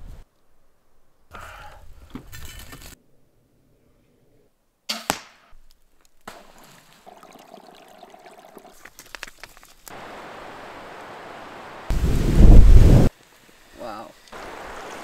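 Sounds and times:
sharp cracks: 4.9 - 6.4
stream water trickling: 6.2 - 11.9, 13.2 - 15.0
river rapids rushing: 14.3 - 15.0.

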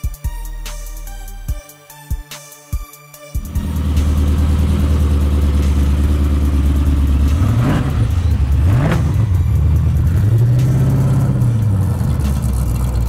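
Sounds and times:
car engine idling and revving: 3.4 - 13.0.

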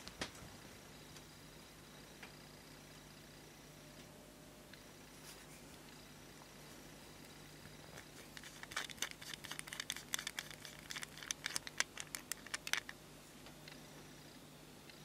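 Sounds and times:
metal screw clicking and scraping: 8.3 - 12.9.

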